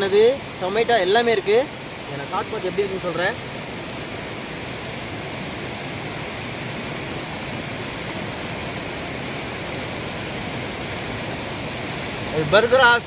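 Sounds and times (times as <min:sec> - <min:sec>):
small waterfall rushing over rocks: 0:00.0 - 0:13.0.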